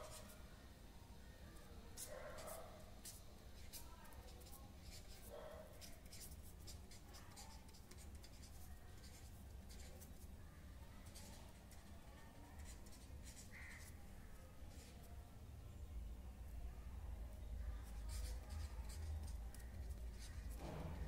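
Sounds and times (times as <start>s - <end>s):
pen scratching on paper: 2.0s - 10.3s, 11.0s - 11.9s, 12.6s - 14.0s, 17.8s - 21.0s.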